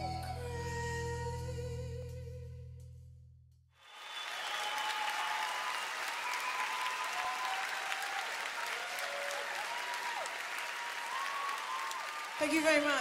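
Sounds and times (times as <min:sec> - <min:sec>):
gliding whistles: 0:03.8 - 0:07.6
audience applauding: 0:03.8 - 0:13.0.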